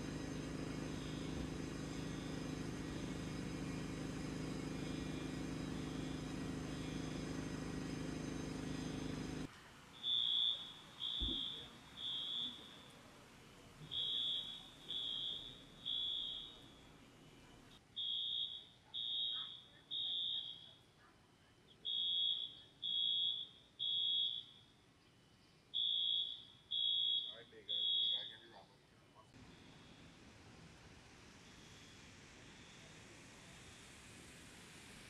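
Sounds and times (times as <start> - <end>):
fire alarm beeping: 0.1 - 9.3, 9.9 - 13.2, 13.8 - 20.9, 21.8 - 24.7, 25.7 - 28.6.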